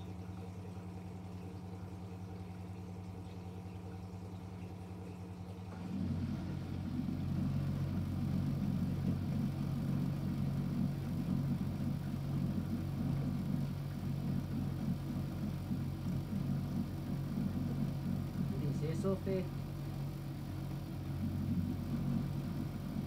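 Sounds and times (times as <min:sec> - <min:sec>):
washing machine churning hum: 0:00.0 - 0:23.0.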